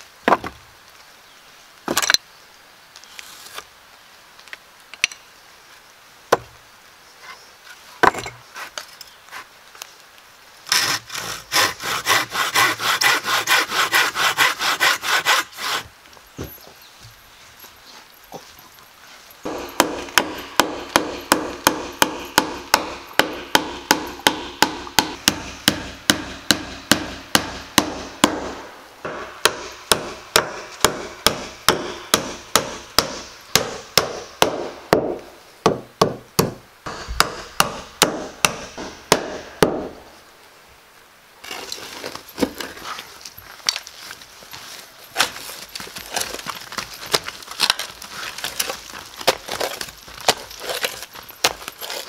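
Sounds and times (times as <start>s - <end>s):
hammer driving nails into wood: 19.5s - 39.9s.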